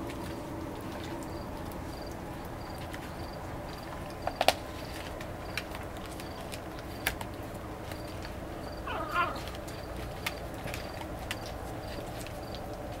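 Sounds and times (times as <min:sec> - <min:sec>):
puppy squeaky whine: 0:08.9 - 0:09.5.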